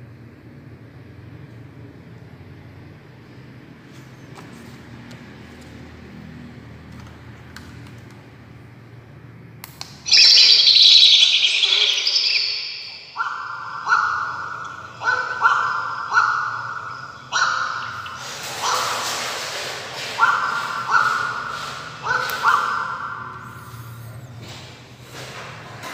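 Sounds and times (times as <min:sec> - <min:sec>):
high chirping: 0:10.0 - 0:19.2
recorded bird calls from speaker: 0:10.0 - 0:24.4.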